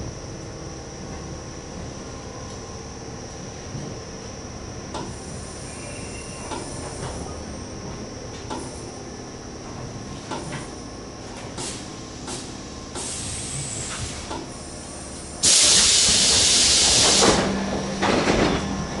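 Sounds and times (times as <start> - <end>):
low steady train hum: 0.0 - 19.0
compressed air hissing: 11.6 - 17.4.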